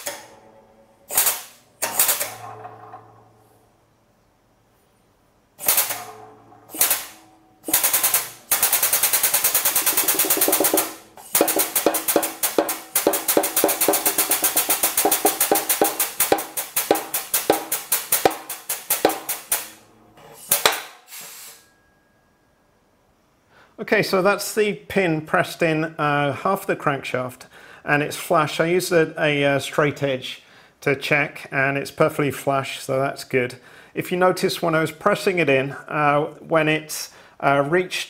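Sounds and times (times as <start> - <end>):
hydraulic press knocking: 9.8 - 21.0.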